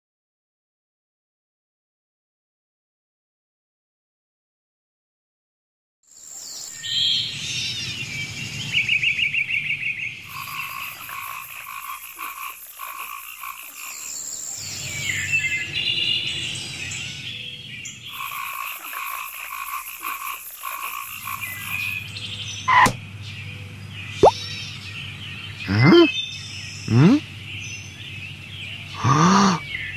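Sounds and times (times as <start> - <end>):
frogs croaking: 8.6 - 29.9.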